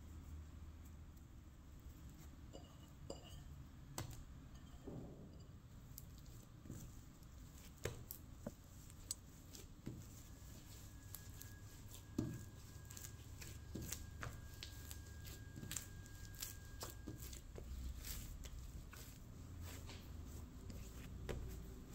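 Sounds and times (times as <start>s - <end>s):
soft thumps of dough: 2.5s - 16.1s, 16.7s - 21.9s
dough squelching and tearing: 5.8s - 21.9s.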